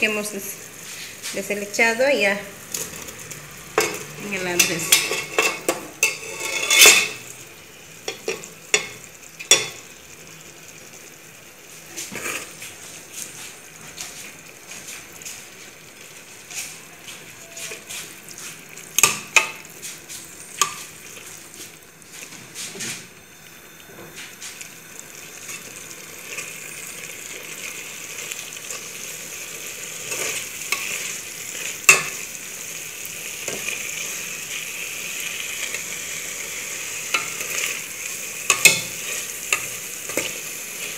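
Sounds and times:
frying sizzle: 0.0 - 40.9
spoon scraping metal pot: 3.8 - 7.2, 29.9 - 32.2.

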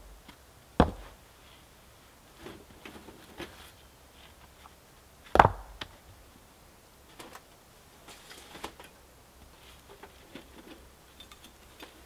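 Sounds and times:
camping gear rustling and clicking: 2.4 - 4.8, 7.1 - 12.0.

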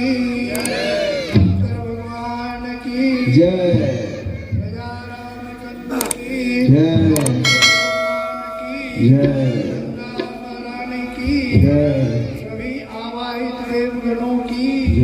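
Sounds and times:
man chanting: 0.0 - 15.0
metal bell ringing: 7.4 - 9.2.

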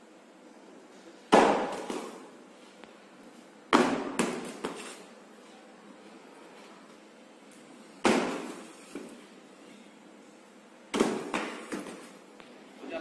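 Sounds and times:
carton landing with loud thud: 1.3 - 2.2, 3.7 - 4.8, 8.0 - 9.1, 10.9 - 12.1.

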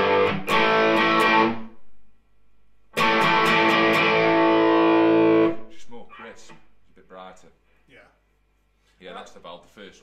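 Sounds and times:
overdriven electric guitar chords: 0.0 - 2.0, 2.9 - 5.7.

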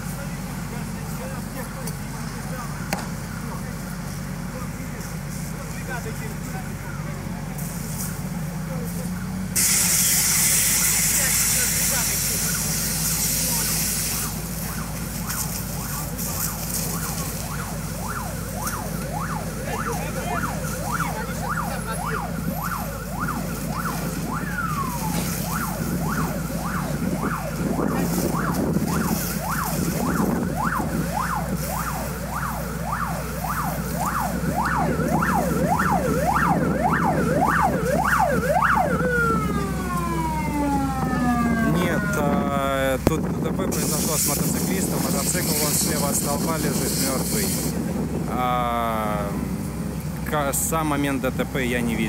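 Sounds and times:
low engine hum: 0.0 - 52.0
emergency siren yelping: 9.6 - 49.7.

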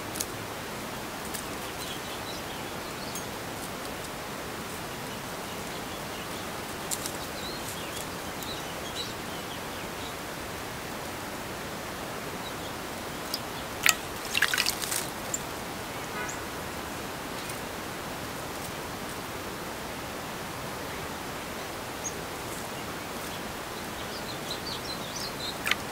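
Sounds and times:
steady outdoor hiss: 0.0 - 25.9
bird splashing in water: 13.2 - 15.4.

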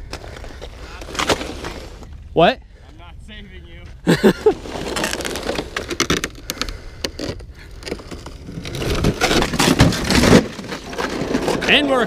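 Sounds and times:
sled scraping over broken ice: 0.0 - 2.1, 4.1 - 6.6, 7.2 - 12.0.

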